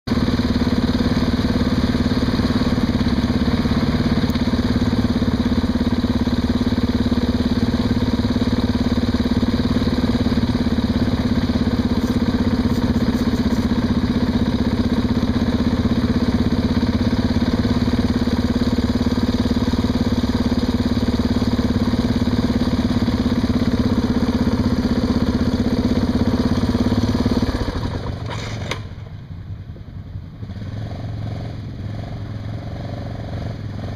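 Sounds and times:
quad engine revving: 0:00.1 - 0:29.0, 0:30.4 - 0:33.9.

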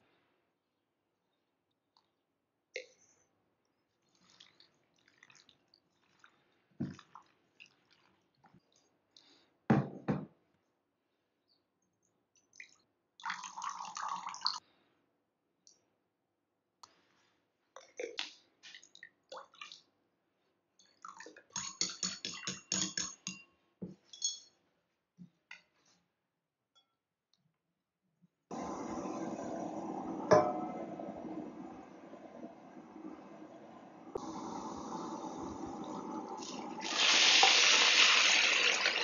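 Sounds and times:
liquid pouring into a bowl: 0:13.2 - 0:14.6
clicks and clinks against bowl: 0:21.6 - 0:23.5, 0:24.1 - 0:24.6.

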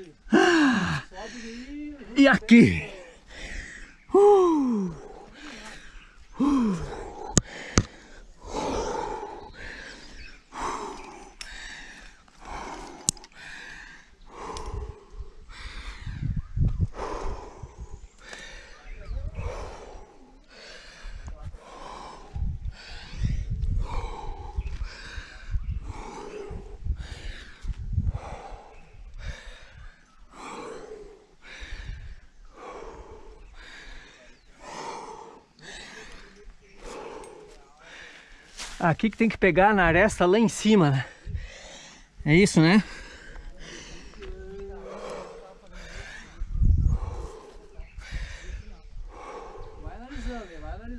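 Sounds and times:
person breathing hard: 0:00.2 - 0:01.8, 0:02.4 - 0:38.8, 0:40.6 - 0:50.8
low wind rumble on microphone: 0:12.4 - 0:20.3, 0:21.0 - 0:35.3, 0:41.1 - 0:42.2, 0:43.0 - 0:50.9
sharp clicks: 0:12.9 - 0:13.4.

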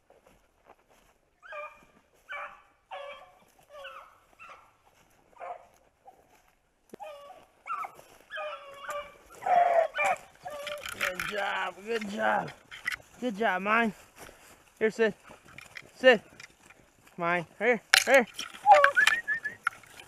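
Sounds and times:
dogs baying: 0:01.4 - 0:06.3, 0:07.0 - 0:12.9, 0:18.4 - 0:19.8.

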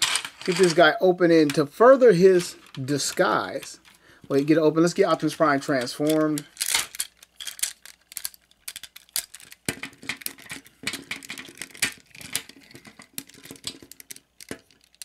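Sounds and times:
plastic toy parts clicking: 0:00.0 - 0:00.8, 0:05.6 - 0:15.0.

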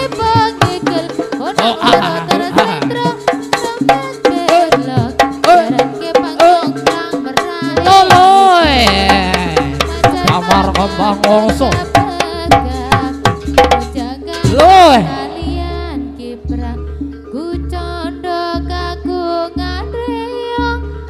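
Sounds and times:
fast hand-drum strokes: 0:00.0 - 0:15.3
sliding melody line: 0:00.0 - 0:20.9.

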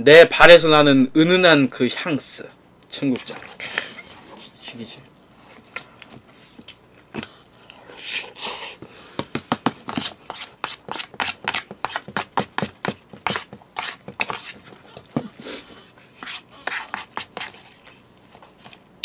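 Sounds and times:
chewing with wet mouth clicks: 0:05.0 - 0:07.9
spoon scraping plastic container: 0:13.2 - 0:15.1.

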